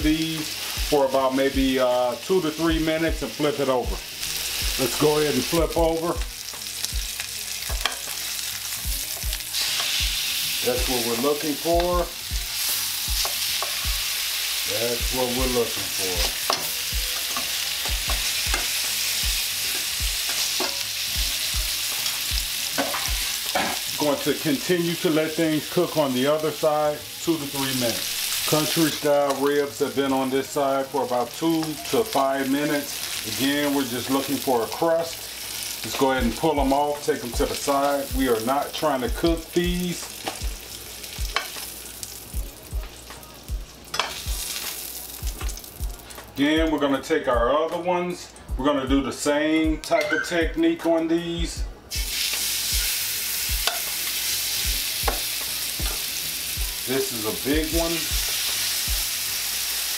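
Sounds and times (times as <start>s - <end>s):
meat sizzling in oil: 0.0s - 46.5s, 51.9s - 59.9s
tongs clicking in pan: 41.3s - 41.7s, 53.6s - 54.0s
tongs knocking in pan: 55.1s - 56.0s.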